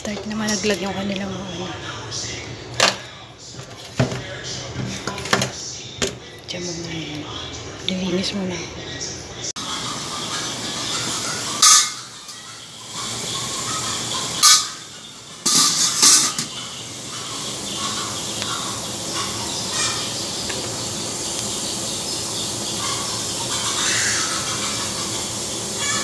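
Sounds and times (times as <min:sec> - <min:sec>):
water boiling hard in a saucepan: 0:09.6 - 0:26.0.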